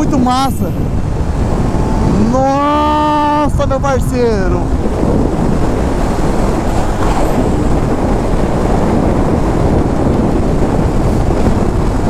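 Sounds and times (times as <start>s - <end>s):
motorcycle engine cruising: 0.0s - 3.8s, 4.5s - 12.0s
wind rush over microphone: 0.0s - 12.0s.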